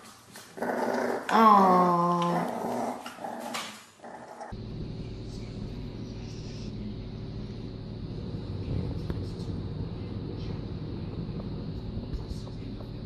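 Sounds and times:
dogs growling: 0.4 - 13.0
steady low hum: 4.3 - 13.0.

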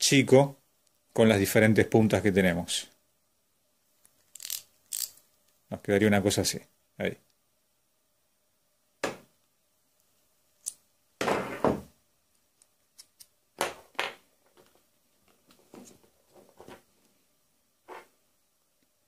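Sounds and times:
small hard parts clicking: 4.2 - 5.2.

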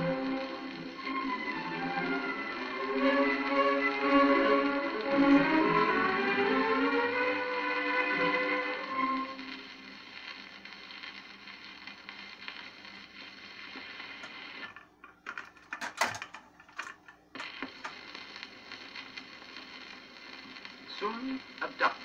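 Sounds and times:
record surface hiss: 0.0 - 22.0
record changer clicks and clunks: 13.7 - 19.3.

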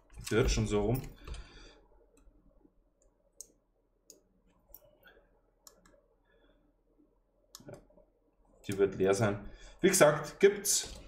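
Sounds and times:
faint clicks and taps: 5.6 - 6.1.

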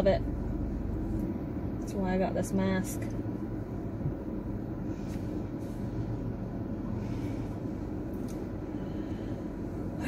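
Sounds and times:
car rumble inside cabin: 0.0 - 10.0
faint rustles: 4.8 - 10.0.

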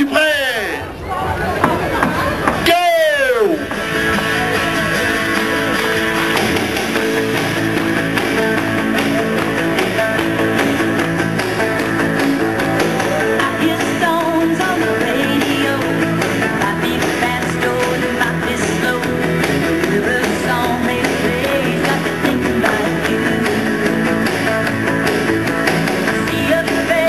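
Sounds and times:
country music with guitar: 3.3 - 27.0.

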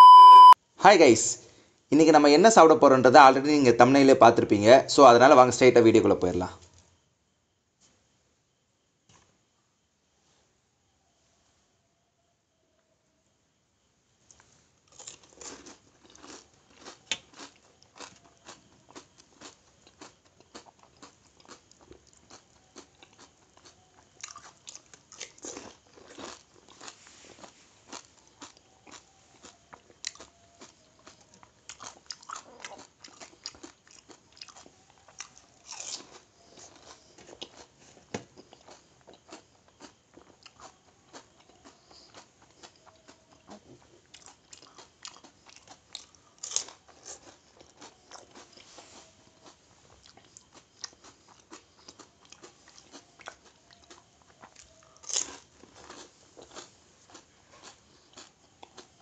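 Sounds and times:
crunching and chewing crisp shells: 14.3 - 59.0.

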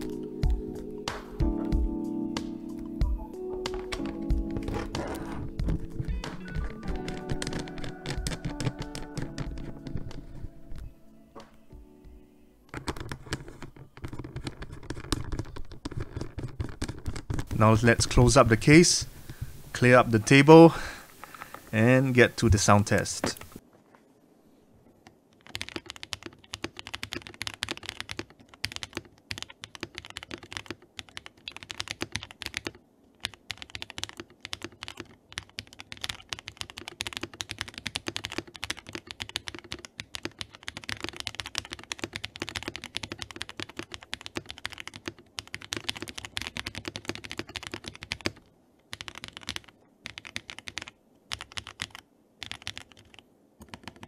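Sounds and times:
mechanical keyboard typing: 3.5 - 10.5, 12.7 - 17.8, 25.4 - 54.0.

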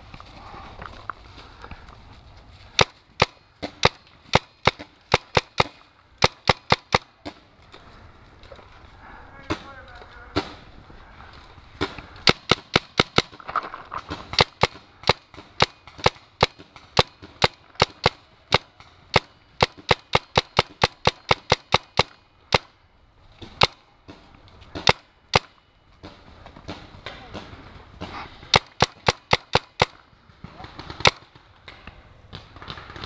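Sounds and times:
paintball markers firing: 2.7 - 7.8, 11.8 - 22.7, 23.4 - 33.0.

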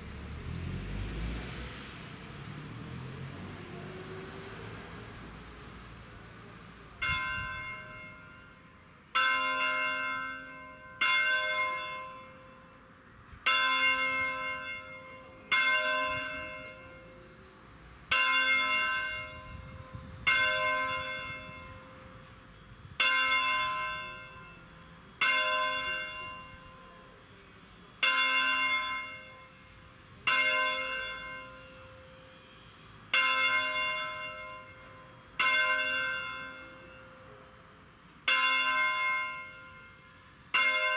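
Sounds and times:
church bell ringing: 7.0 - 17.4, 18.1 - 27.4, 28.0 - 40.9.

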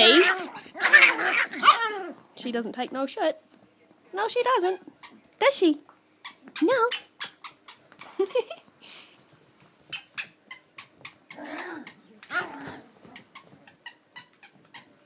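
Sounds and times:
puppies yipping: 0.0 - 2.2
puppies growling: 0.0 - 2.4, 10.2 - 15.0.

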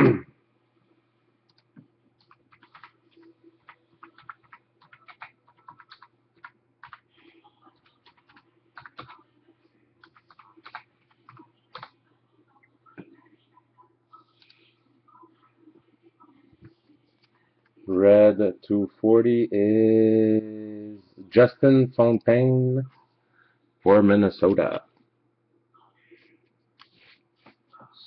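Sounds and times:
faint low hum: 0.0 - 28.0
keyboard typing: 1.5 - 9.3, 10.0 - 12.0.

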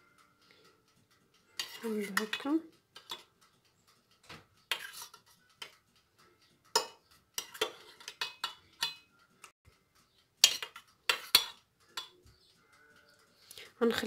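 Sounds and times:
metal spoon clinking on saucepan: 1.6 - 3.3, 4.7 - 5.7, 6.7 - 9.1, 10.4 - 12.2.

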